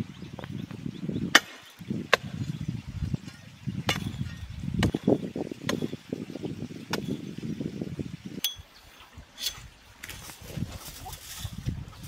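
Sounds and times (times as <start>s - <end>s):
hoe chopping stony earth: 1.2s - 2.6s, 3.8s - 6.0s, 6.9s - 7.3s.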